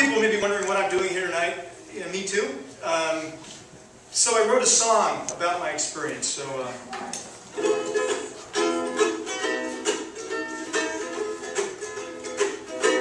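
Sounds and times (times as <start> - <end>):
ukulele strumming chords: 7.5 - 13.0.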